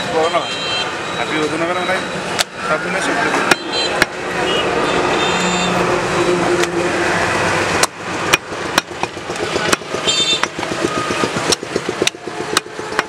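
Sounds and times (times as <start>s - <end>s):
street traffic noise: 0.0s - 13.0s
cleaver striking chopping block: 3.4s - 4.2s, 7.8s - 13.0s.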